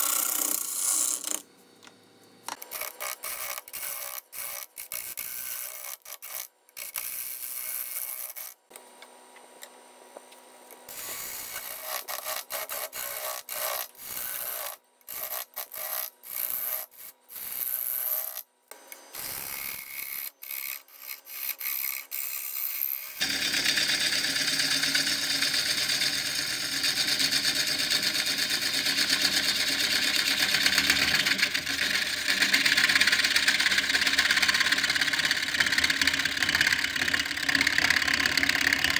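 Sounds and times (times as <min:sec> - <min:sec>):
wood being sawn: 0:10.9 - 0:18.4, 0:19.5 - 0:38.9
power tool running: 0:19.0 - 0:38.9.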